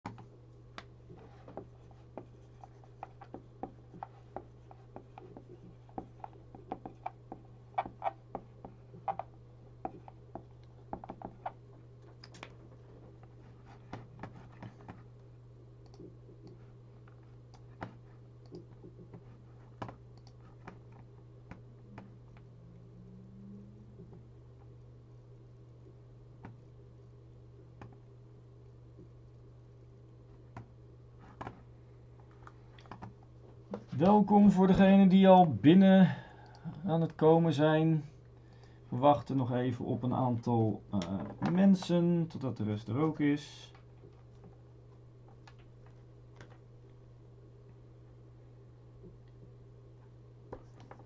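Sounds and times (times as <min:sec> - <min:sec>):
steady low hum: 0:00.0 - 0:51.0
marker writing on whiteboard: 0:01.2 - 0:10.2.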